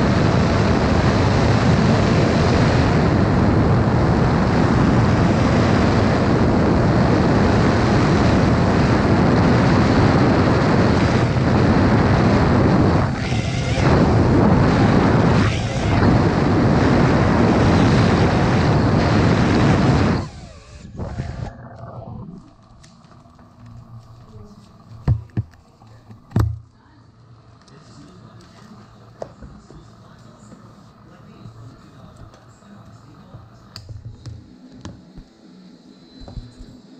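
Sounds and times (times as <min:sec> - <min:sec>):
wind on microphone: 0:00.0 - 0:22.6
drone propellers rushing: 0:00.0 - 0:26.4.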